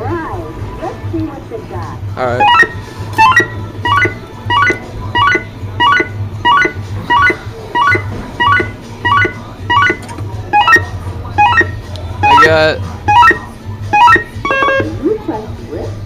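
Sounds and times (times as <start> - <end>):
arcade machine rising beeps: 2.3 - 15.0.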